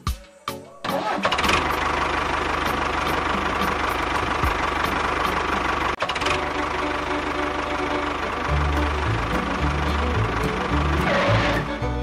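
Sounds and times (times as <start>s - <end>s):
tractor engine knocking putter: 1.0s - 12.0s.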